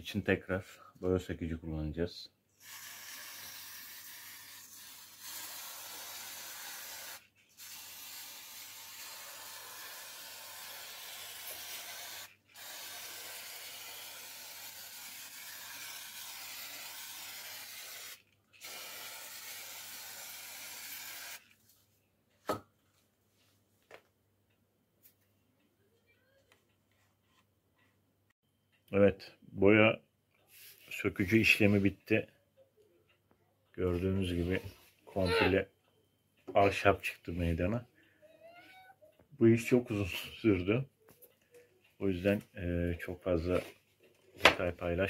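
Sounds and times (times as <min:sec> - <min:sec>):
aerosol can spraying: 0:02.6 - 0:21.4.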